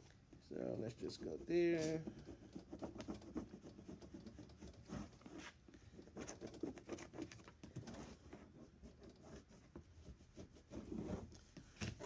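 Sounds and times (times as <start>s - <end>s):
squeegee scratching on vinyl sheet: 1.0s - 5.6s, 9.0s - 11.4s.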